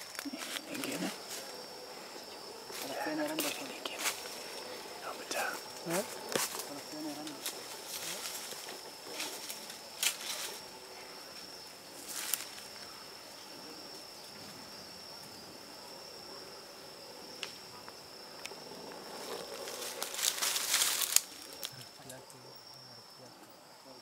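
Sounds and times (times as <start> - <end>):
night insect trilling: 0.0 - 24.0.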